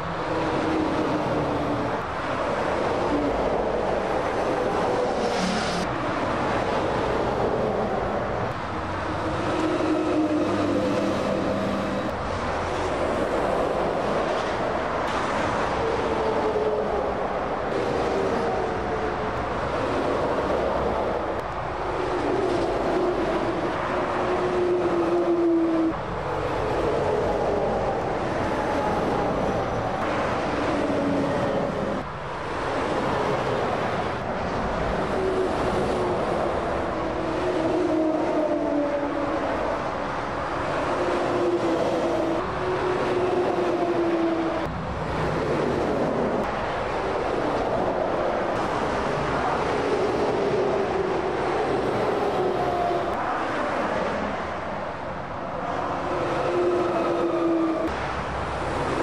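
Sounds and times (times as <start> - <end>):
motorway traffic rushing: 0.0 - 59.0
trucks passing: 0.0 - 59.0.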